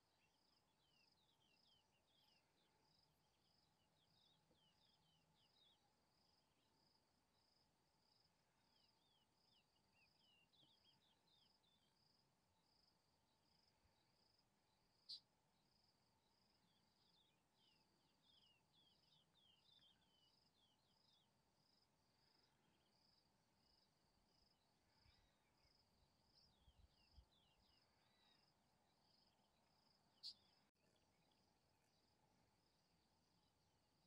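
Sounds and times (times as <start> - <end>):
insect chirping: 0.1 - 34.0
bird chirping: 16.3 - 21.4, 24.3 - 32.1.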